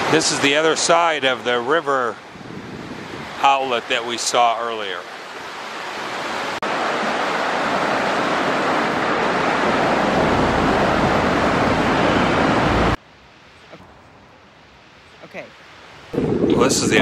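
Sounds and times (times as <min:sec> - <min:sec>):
sea surf breaking on shore: 0:00.0 - 0:13.0.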